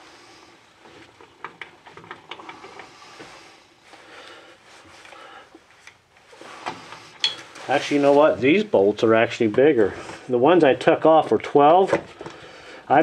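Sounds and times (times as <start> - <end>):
gloved hands handling bolts: 4.8 - 10.3.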